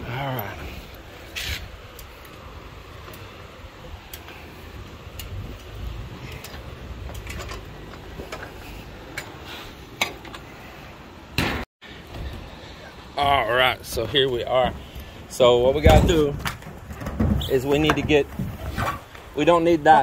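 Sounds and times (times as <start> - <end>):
wind rumble on microphone: 0.0 - 9.1, 13.7 - 19.4.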